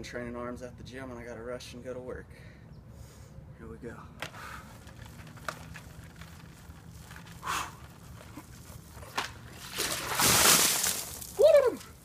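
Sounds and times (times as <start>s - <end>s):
ice water pouring and splashing: 9.5s - 11.8s
person crying out: 11.4s - 11.8s.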